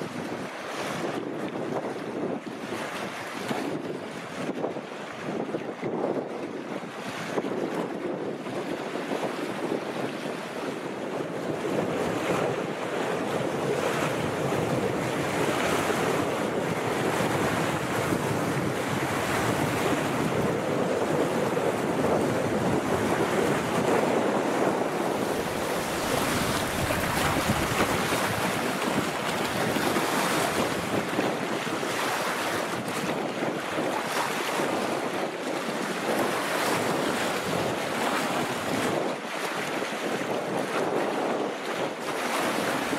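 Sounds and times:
wind buffeting microphone: 0:00.0 - 0:42.9
waves lapping against rocks: 0:11.8 - 0:39.6.

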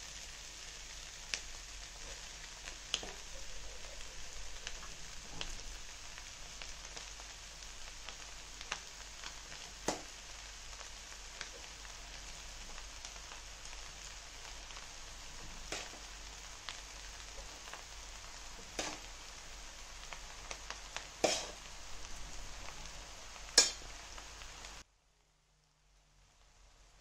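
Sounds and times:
rice sizzling in a pan: 0:00.0 - 0:27.0
metal ladle knocking pan: 0:18.7 - 0:19.0, 0:21.2 - 0:21.6, 0:23.6 - 0:23.9.

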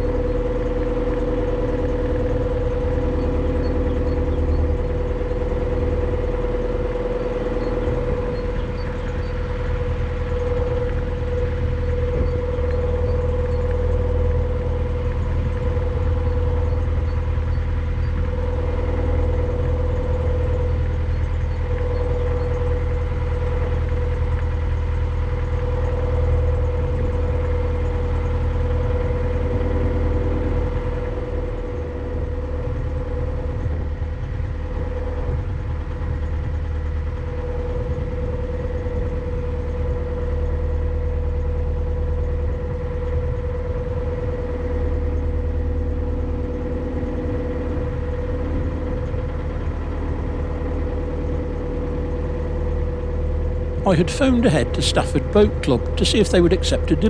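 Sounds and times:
diesel engine running: 0:45.0 - 0:57.0.

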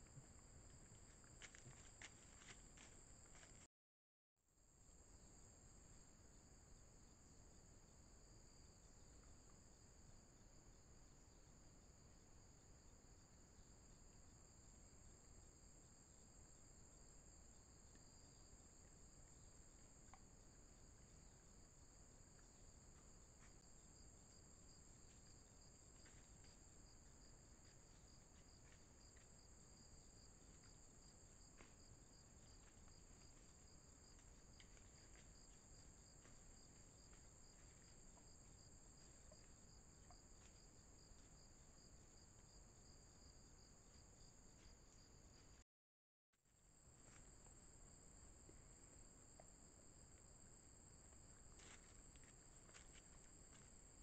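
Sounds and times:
insects chorus: 0:10.4 - 0:45.6, 0:46.8 - 0:54.0.

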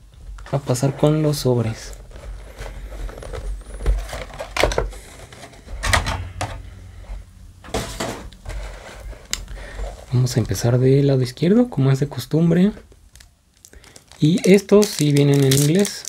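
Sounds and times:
foil packs rustling: 0:01.1 - 0:05.8, 0:12.6 - 0:16.0.

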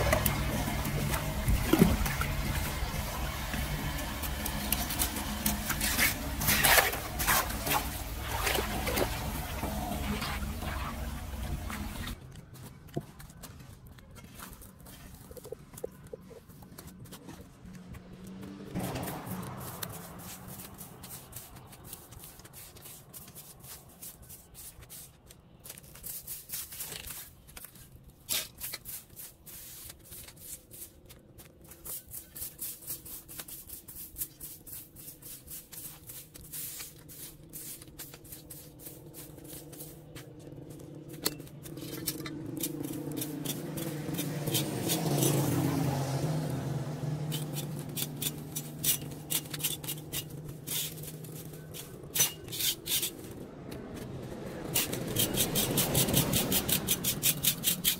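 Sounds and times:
engine passing: 0:00.0 - 0:12.2, 0:17.1 - 0:22.1, 0:37.6 - 0:57.9
push broom sweeping on concrete: 0:00.0 - 0:12.2, 0:18.2 - 0:57.9.

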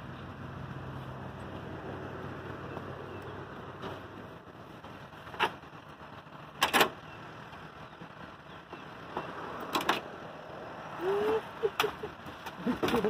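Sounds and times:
short rising and falling vocal: 0:10.7 - 0:11.8.

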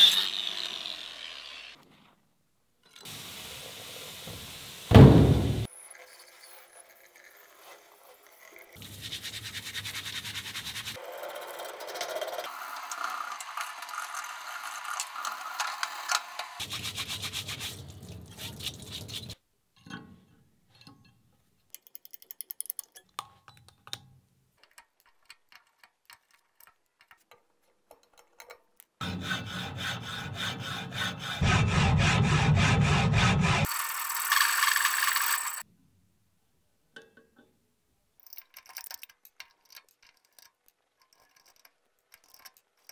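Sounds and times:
chisel tapping and scraping metal: 0:19.8 - 0:31.3, 0:37.0 - 0:37.5, 0:38.2 - 0:42.9
hacksaw cutting metal: 0:29.0 - 0:35.6
screwdriver scraping plaster: 0:38.6 - 0:42.9.

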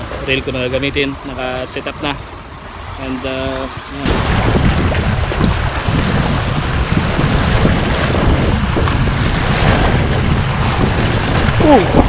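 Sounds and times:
sea waves washing: 0:00.0 - 0:12.0
wind buffeting the microphone: 0:00.0 - 0:12.0.

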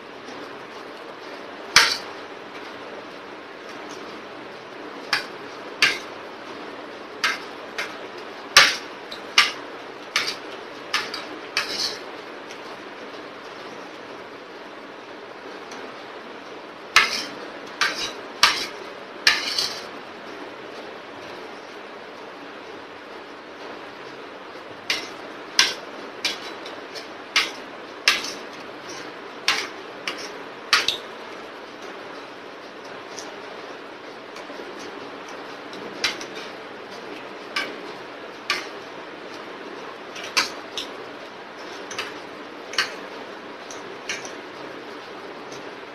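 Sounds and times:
spoon scraping ceramic plate: 0:11.0 - 0:12.0, 0:17.0 - 0:19.9.

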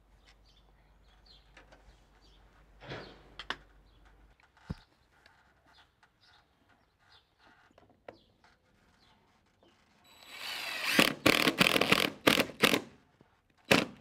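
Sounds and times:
birds chirping faintly: 0:00.0 - 0:10.3.

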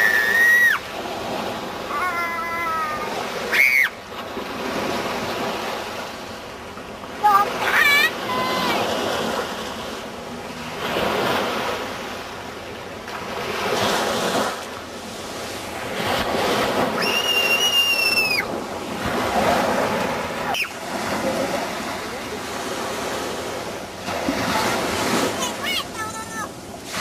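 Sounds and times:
small waves washing on beach: 0:00.0 - 0:27.0.

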